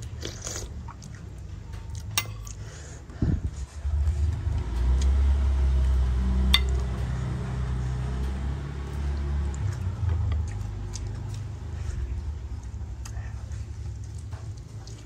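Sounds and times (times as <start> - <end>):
metal spoon clinking on plate: 2.1 - 2.5, 6.6 - 6.8
low rumble: 3.0 - 14.8.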